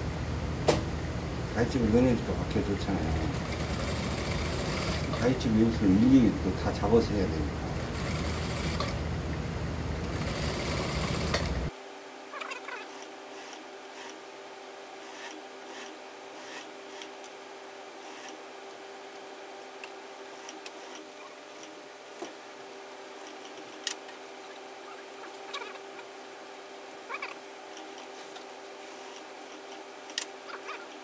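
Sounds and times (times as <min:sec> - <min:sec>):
faint steady hum: 0:00.0 - 0:31.0
sewing machine stitching: 0:03.0 - 0:05.4, 0:07.8 - 0:09.0, 0:10.1 - 0:11.7.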